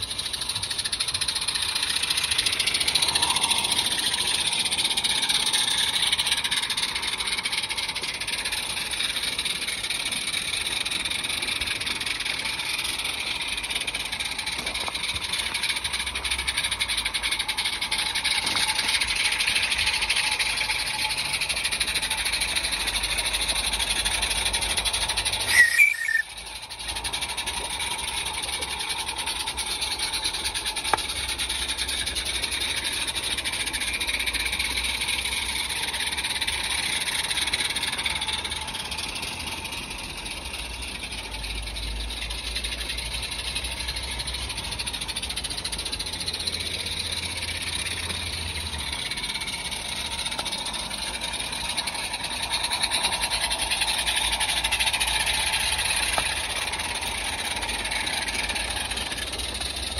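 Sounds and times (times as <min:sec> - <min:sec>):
steam locomotives hissing: 0:00.0 - 0:59.9
short tones: 0:25.4 - 0:26.4.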